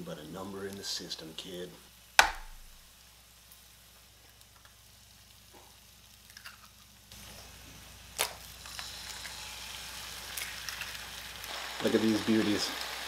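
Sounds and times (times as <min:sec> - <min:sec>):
eggs sizzling on a griddle: 0:00.1 - 0:13.0
eggshell cracking: 0:02.2 - 0:02.8.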